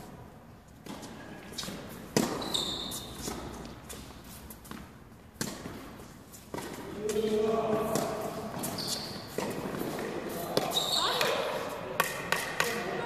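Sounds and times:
racket striking tennis ball: 0.8s - 2.4s, 4.7s - 6.8s, 7.7s - 11.4s, 12.0s - 12.9s
short high squeak: 2.4s - 3.2s
ball bouncing: 12.0s - 13.0s.

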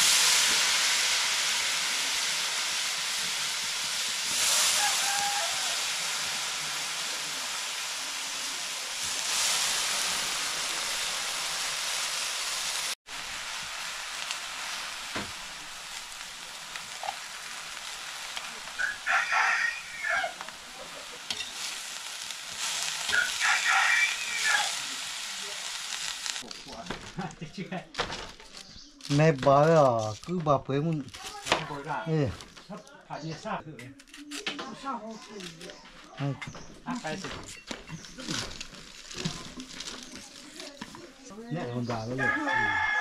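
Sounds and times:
food sizzling in a pan: 0.0s - 32.4s, 34.8s - 43.0s
rooster crowing: 4.5s - 6.4s, 18.8s - 20.4s, 23.1s - 24.8s, 42.2s - 43.0s.

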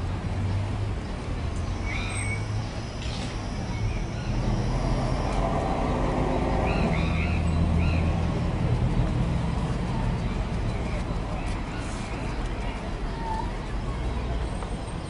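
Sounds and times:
vehicle engine running: 4.2s - 13.0s.

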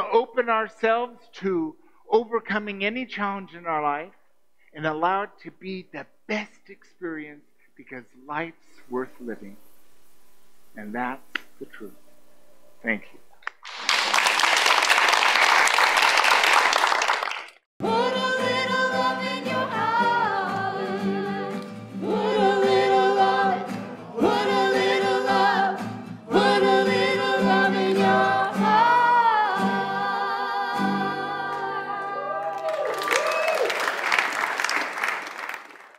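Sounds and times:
applause: 13.6s - 17.7s, 32.1s - 35.9s
person singing with instrumental backing: 17.8s - 32.3s.

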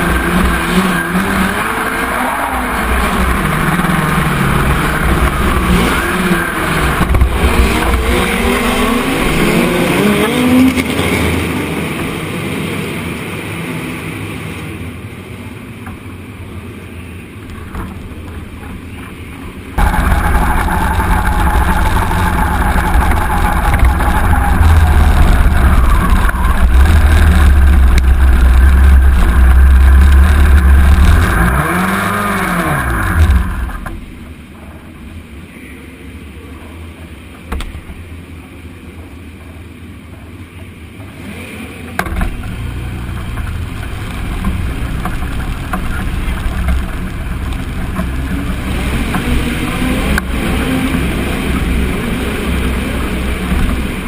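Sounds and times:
steady low engine sound: 0.0s - 10.2s, 11.3s - 54.0s
race car engine revving: 0.0s - 13.2s, 19.8s - 34.0s, 41.1s - 54.0s.

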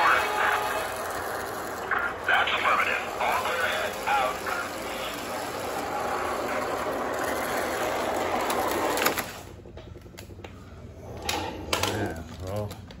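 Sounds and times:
model train motor whirring: 0.0s - 10.3s.

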